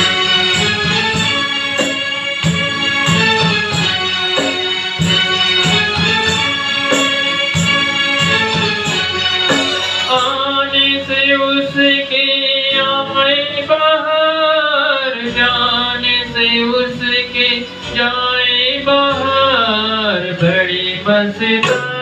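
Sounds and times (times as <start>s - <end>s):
recorded backing music: 0.0s - 22.0s
man singing into a microphone: 10.0s - 22.0s.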